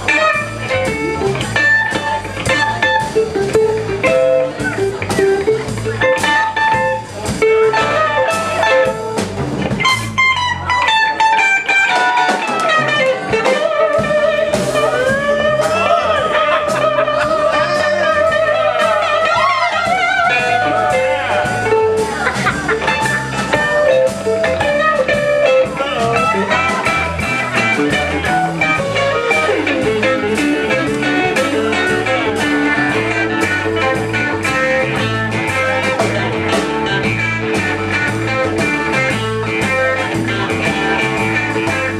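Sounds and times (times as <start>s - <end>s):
drum beat: 0.0s - 41.9s
electric guitar lead: 0.0s - 41.9s.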